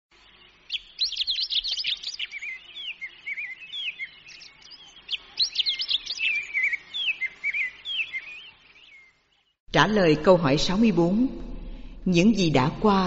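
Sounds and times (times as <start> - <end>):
birds chirping and whistling: 0.2 - 9.6.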